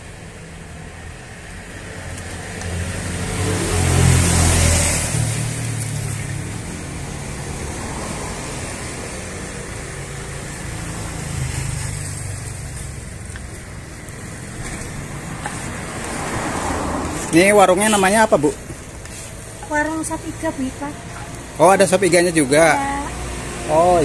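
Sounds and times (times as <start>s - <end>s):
traffic engine rumble: 0.0s - 24.0s
tyres hissing: 7.8s - 24.0s.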